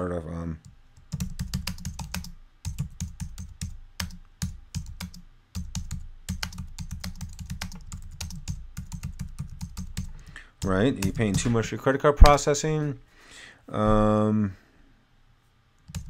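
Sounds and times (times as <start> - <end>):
typing on a keyboard: 1.0 - 11.6.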